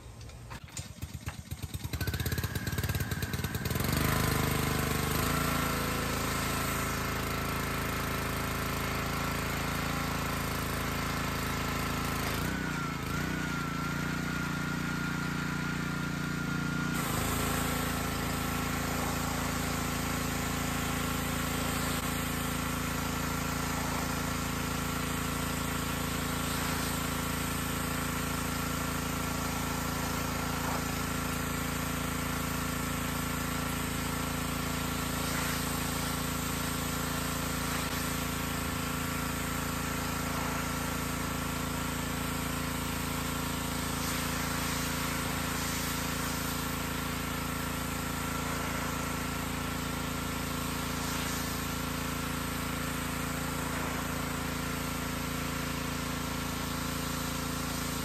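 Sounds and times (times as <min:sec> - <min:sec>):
pressure washer engine whining: 0:00.0 - 0:58.0.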